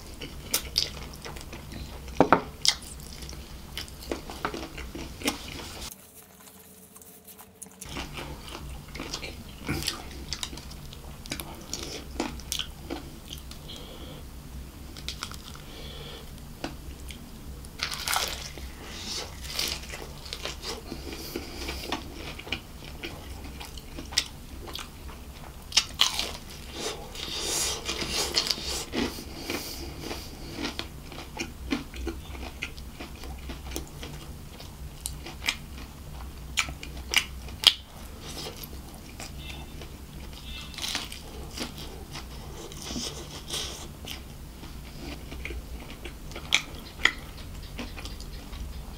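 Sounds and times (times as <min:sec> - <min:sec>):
crunchy chewing: 0:00.0 - 0:14.2, 0:14.9 - 0:48.9
low hum: 0:00.0 - 0:48.9.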